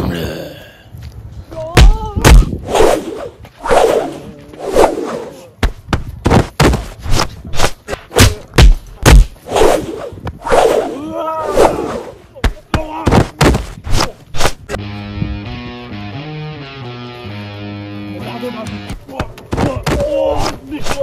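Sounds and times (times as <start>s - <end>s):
punches and hits thudding: 1.8s - 2.6s, 5.6s - 9.4s, 12.4s - 14.6s
whooshes: 2.2s - 5.5s, 9.1s - 12.2s
yells and grunts: 10.9s - 13.4s, 19.6s - 21.0s.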